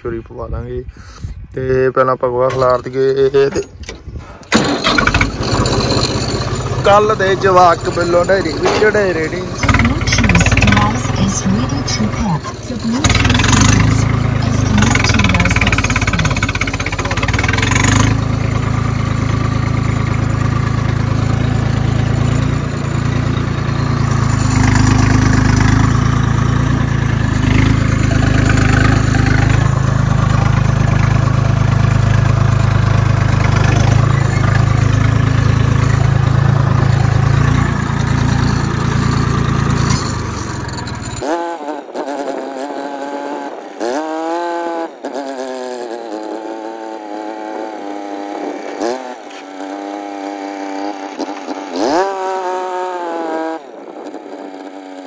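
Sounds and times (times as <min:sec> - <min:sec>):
distant engine rising and falling: 0:02.0 - 0:55.0
tractor diesel engine: 0:02.0 - 0:55.0.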